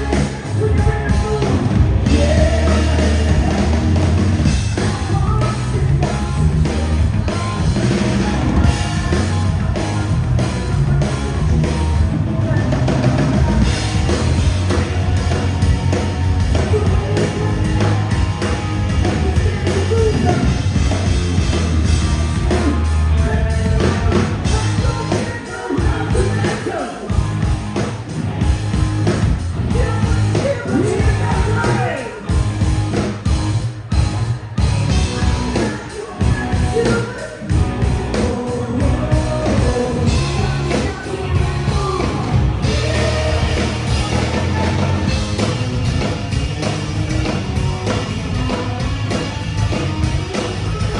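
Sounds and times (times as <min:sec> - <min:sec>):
person singing: 0:00.0 - 0:04.1, 0:04.7 - 0:20.7, 0:22.4 - 0:27.2, 0:34.9 - 0:45.3, 0:50.0 - 0:50.9
bass guitar: 0:00.0 - 0:50.9
drum kit: 0:00.0 - 0:50.9
electric guitars: 0:00.0 - 0:50.9.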